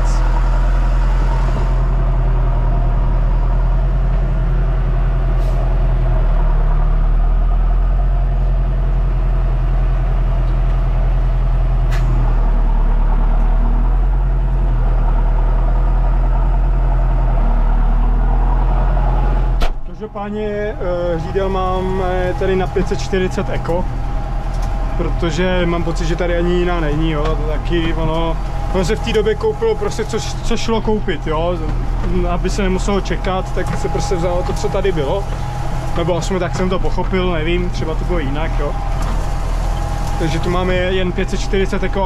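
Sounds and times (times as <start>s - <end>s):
tractor diesel engine burbling: 0.0s - 42.0s.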